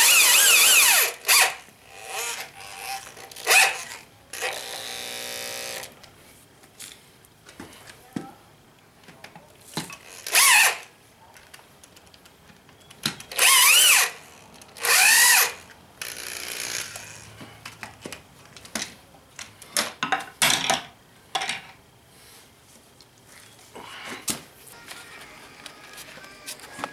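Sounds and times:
electric drill driving screws: 0.0s - 5.9s, 10.0s - 10.9s, 13.3s - 17.3s.

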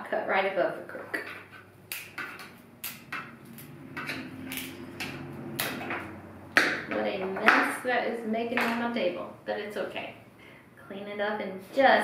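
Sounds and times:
wire cutters snipping: 1.9s - 7.6s.

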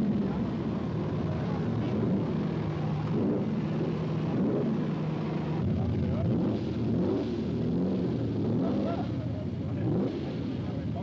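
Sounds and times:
car engine idling: 0.0s - 11.0s
people talking: 1.2s - 1.9s, 5.6s - 6.4s, 8.6s - 11.0s.

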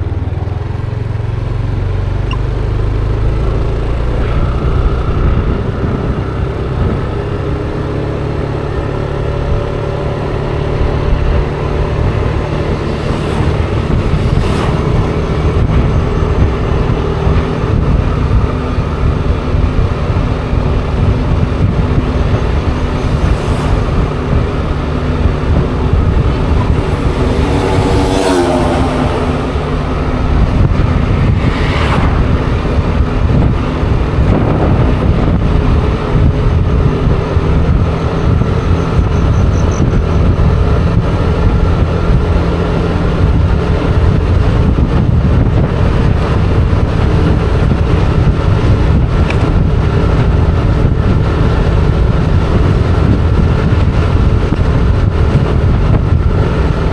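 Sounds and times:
motor scooter engine running: 0.0s - 56.9s
wind on microphone: 0.0s - 56.9s
brief whoosh: 26.5s - 32.9s.

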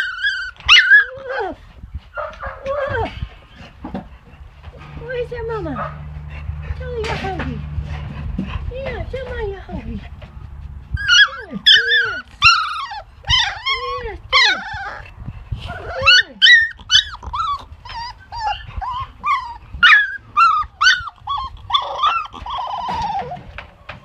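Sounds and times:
puppy whining and yelping: 0.0s - 4.6s, 10.9s - 24.0s.

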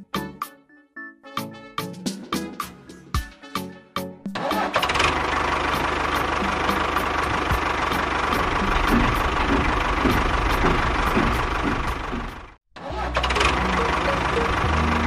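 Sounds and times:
tractor engine running: 4.4s - 15.0s.

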